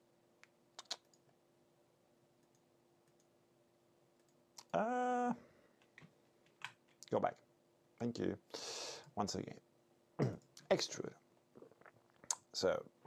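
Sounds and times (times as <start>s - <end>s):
computer mouse clicking: 0.8s - 1.3s.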